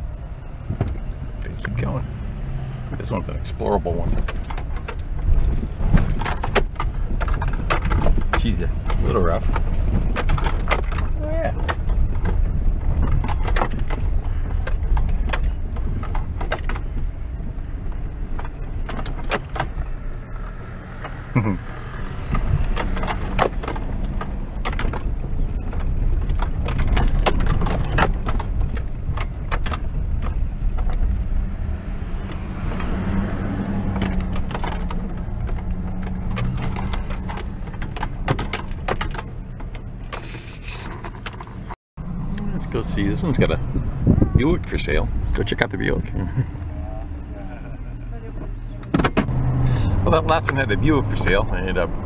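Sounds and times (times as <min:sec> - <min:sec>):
truck engine rumbling: 0:00.0 - 0:52.0
knocks and rattles: 0:02.8 - 0:41.8, 0:48.4 - 0:52.0.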